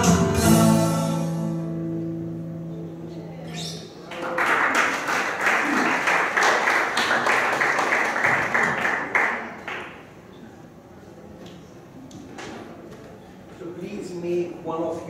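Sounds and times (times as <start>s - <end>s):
audience applauding: 4.1s - 10.1s.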